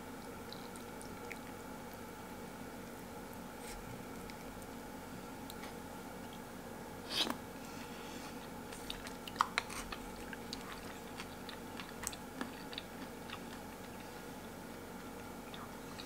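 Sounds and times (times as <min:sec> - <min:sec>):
faint room hum: 0:00.0 - 0:16.0
chewing and crunching: 0:00.2 - 0:02.0, 0:08.3 - 0:16.0.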